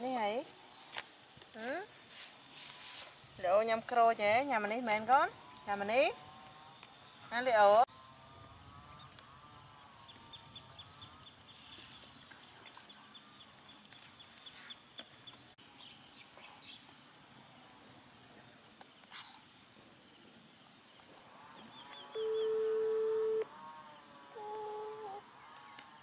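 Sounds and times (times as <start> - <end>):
bird calls: 21.5 - 26.0
bird chirping: 21.6 - 23.4.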